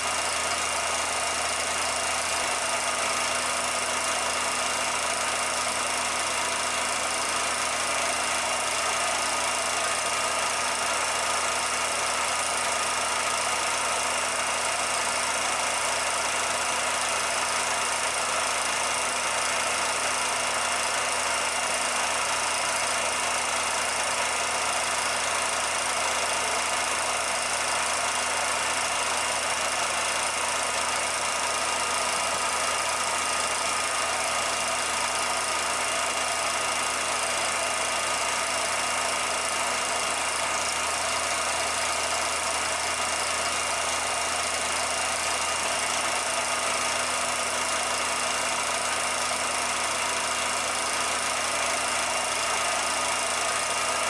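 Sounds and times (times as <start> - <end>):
film projector running: 0.0 - 54.0.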